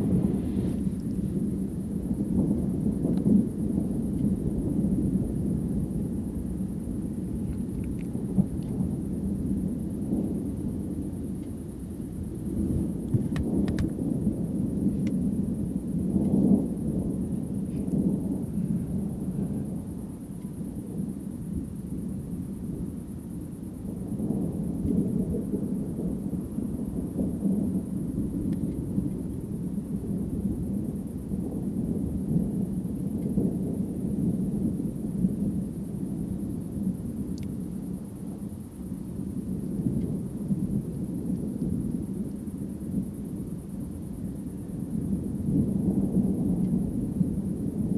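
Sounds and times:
thunder peals: 0:00.0 - 0:05.4
distant thunder rumbling: 0:00.0 - 0:47.9.

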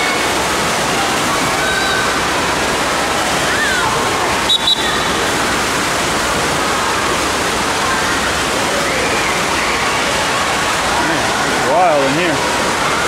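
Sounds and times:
children shouting: 0:00.0 - 0:05.4, 0:06.5 - 0:11.5
water rushing indoors: 0:00.0 - 0:13.0.

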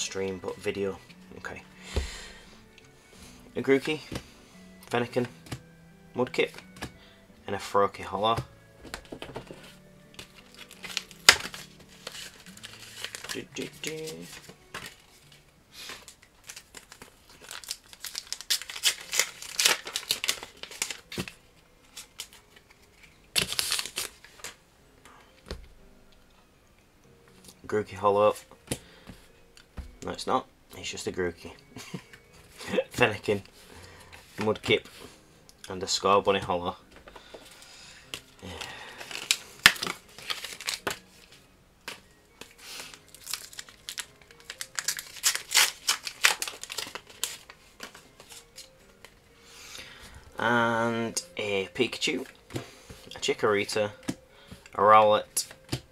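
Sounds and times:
trading cards rustling: 0:08.4 - 0:24.6, 0:37.0 - 0:55.9
wrapper crinkling: 0:09.6 - 0:24.6, 0:38.1 - 0:49.2.

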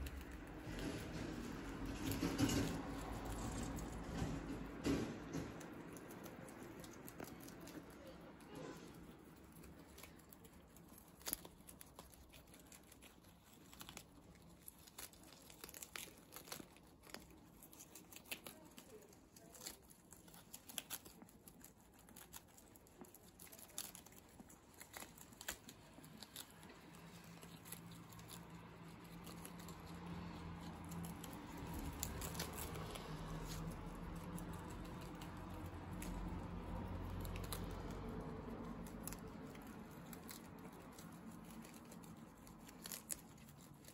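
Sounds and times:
guinea pigs chewing lettuce: 0:00.0 - 0:43.9.

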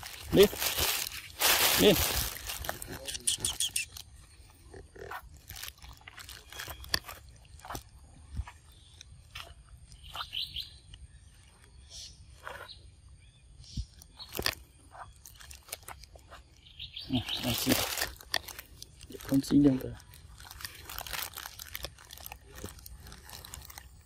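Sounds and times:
monkey chewing fruit: 0:00.0 - 0:24.0
monkey chirps: 0:00.1 - 0:04.2, 0:09.9 - 0:10.9.

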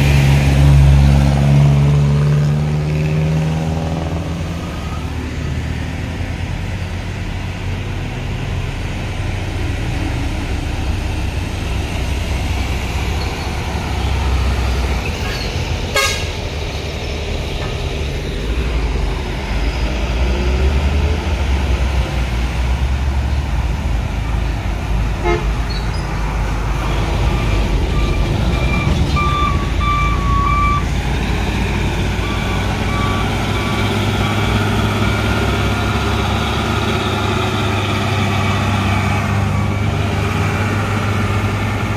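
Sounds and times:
truck engines rumbling: 0:00.0 - 0:41.9
vehicle horn short toots: 0:15.9 - 0:16.3, 0:25.2 - 0:25.5.

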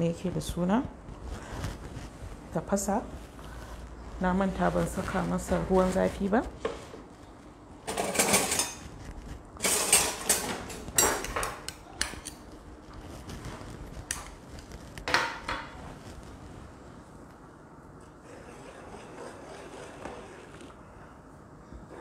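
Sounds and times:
metal kitchen utensils clattering: 0:07.8 - 0:08.9, 0:09.6 - 0:12.4.

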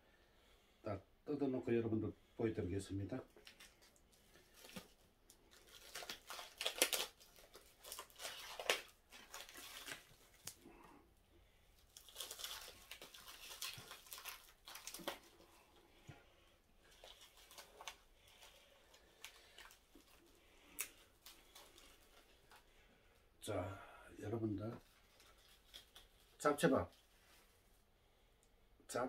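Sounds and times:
cling wrap tearing and crinkling: 0:03.3 - 0:10.8, 0:11.8 - 0:15.7, 0:16.8 - 0:22.6, 0:24.8 - 0:27.5.

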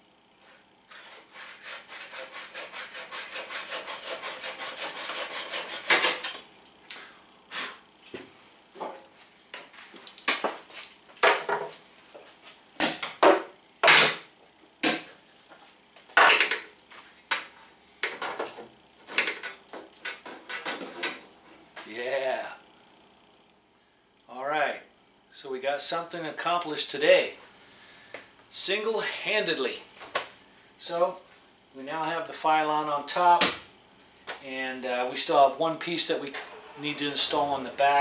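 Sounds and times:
hand saw cutting fiberglass: 0:00.9 - 0:06.3.

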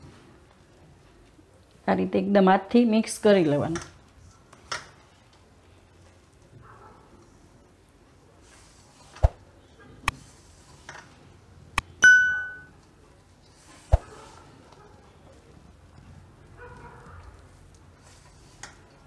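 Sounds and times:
bright bell ding: 0:12.0 - 0:12.8
hands mixing batter in a bowl: 0:17.1 - 0:19.0.

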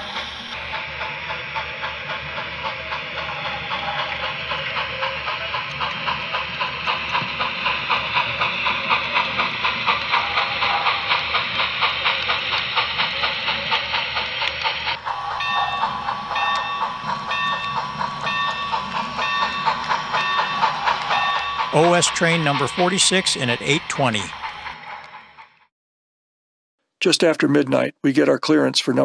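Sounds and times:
model steam locomotive chuffing: 0:00.0 - 0:25.7
bell ringing: 0:15.0 - 0:24.4.

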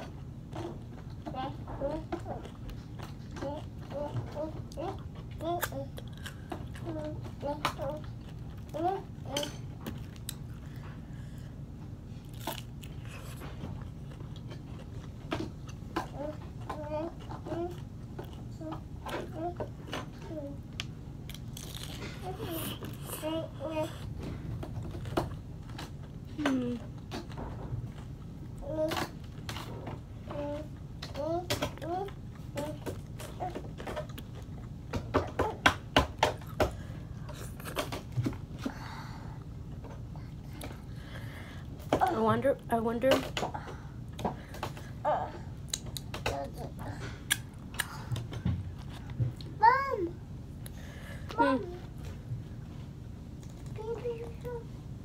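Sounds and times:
chewing crisp food: 0:00.4 - 0:29.8, 0:31.5 - 0:34.9.

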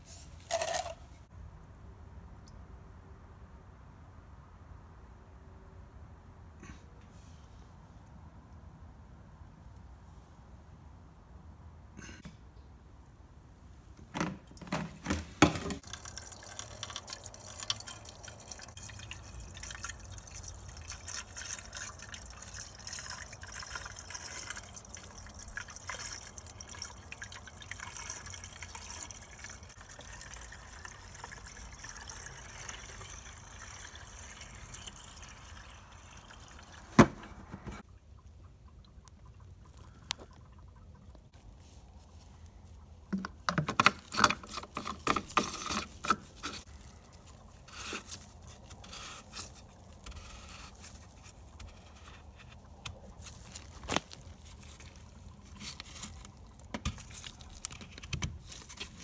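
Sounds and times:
liquid trickling into plastic tank: 0:14.1 - 0:41.3, 0:43.0 - 0:59.0.

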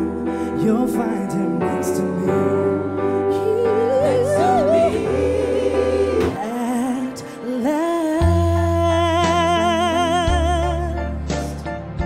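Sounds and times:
keyboard chords: 0:00.0 - 0:12.0
backing singers: 0:02.4 - 0:07.6.

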